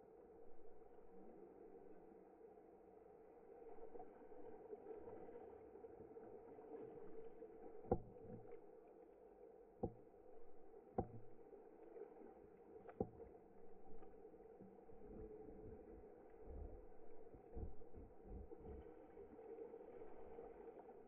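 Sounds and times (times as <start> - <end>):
muffled water lapping: 0.6 - 21.0.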